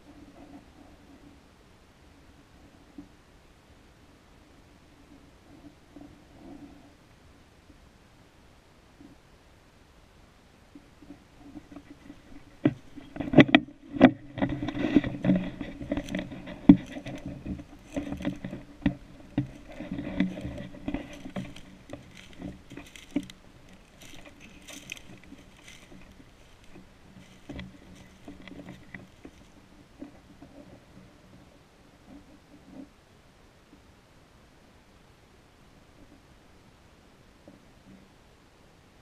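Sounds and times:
twigs crackling: 11.4s - 30.8s
footsteps crunching through dry leaves: 13.8s - 29.6s.

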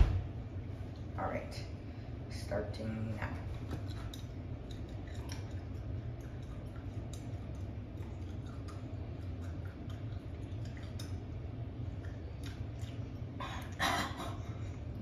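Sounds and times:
steady low hum: 0.0s - 15.0s
wet chewing crunches: 3.8s - 13.4s.

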